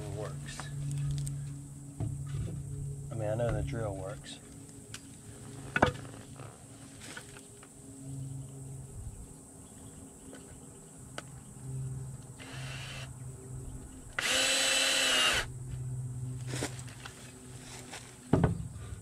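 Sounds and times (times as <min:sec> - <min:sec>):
cordless drill whirring: 0:12.4 - 0:13.1, 0:14.2 - 0:15.5.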